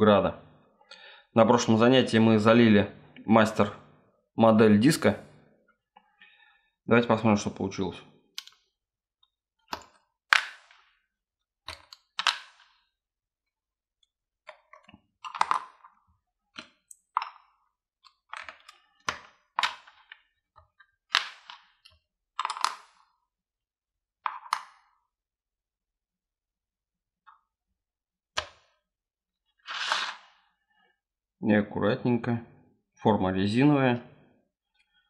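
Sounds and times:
plastic bricks clicking apart: 11.7 - 12.8, 14.5 - 15.9, 21.1 - 23.0.

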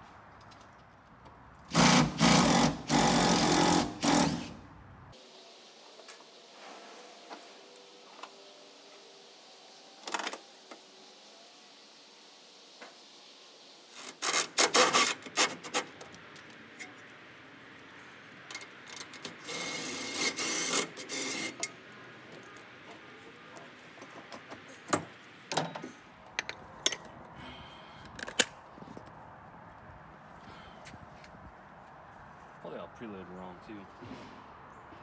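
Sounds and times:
impact wrench running: 1.7 - 4.6.

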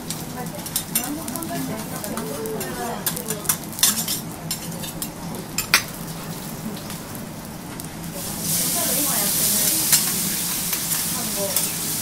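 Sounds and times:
fat sizzling: 0.0 - 12.0
metal spatula scraping on griddle: 0.8 - 5.7.

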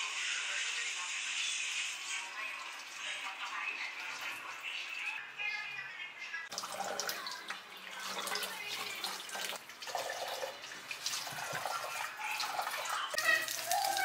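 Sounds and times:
tap water splashing: 6.5 - 14.0
water dripping: 6.5 - 14.0.

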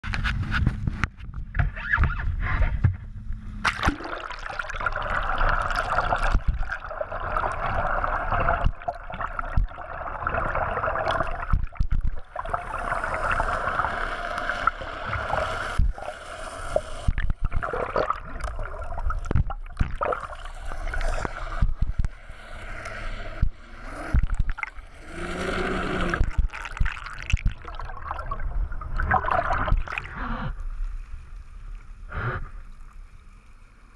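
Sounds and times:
muffled rushing gurgling water: 2.4 - 33.9
knocks and splashes: 3.6 - 4.5, 17.1 - 20.3.

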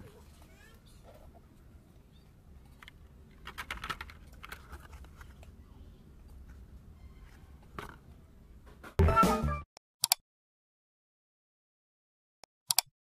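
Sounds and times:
pitched sound effect: 9.0 - 9.7.

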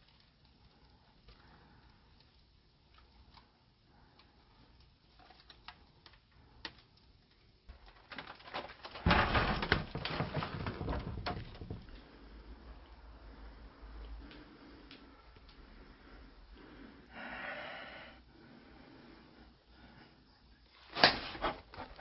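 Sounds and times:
faint clicks and rustles: 0.0 - 16.8.

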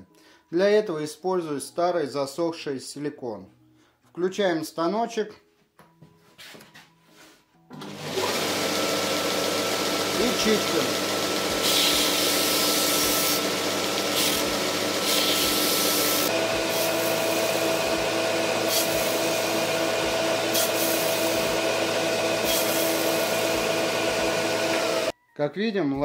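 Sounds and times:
sander motor hum: 7.7 - 25.1.

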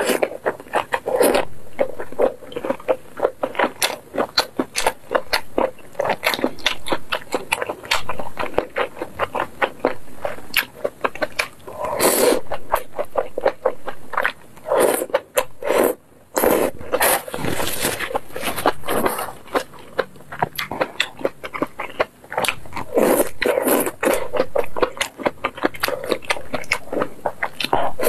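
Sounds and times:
wet chewing mouth clicks: 0.0 - 28.0
noodle slurping: 14.6 - 19.4.

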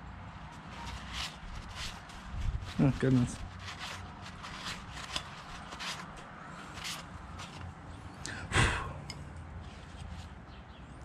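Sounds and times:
rag wiping metal cover: 0.5 - 7.7
person sighing: 8.2 - 9.1.

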